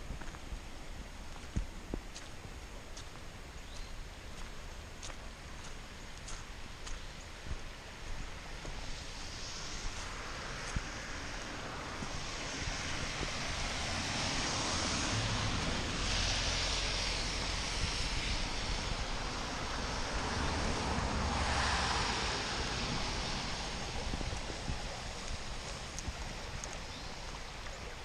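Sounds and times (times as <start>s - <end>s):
stream rushing: 0.0s - 28.0s
wind rumbling on microphone: 0.0s - 28.0s.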